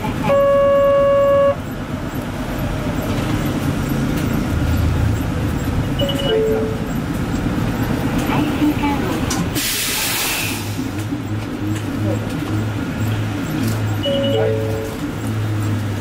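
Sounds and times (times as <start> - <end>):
traffic rumbling: 0.0 - 16.0
horn-like tone: 0.2 - 1.6
short beep: 0.2 - 1.7, 6.0 - 6.9, 14.0 - 15.0.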